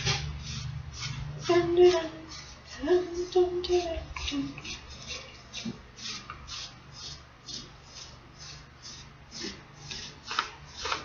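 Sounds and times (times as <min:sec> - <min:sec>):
paintbrush strokes: 0:00.0 - 0:11.0.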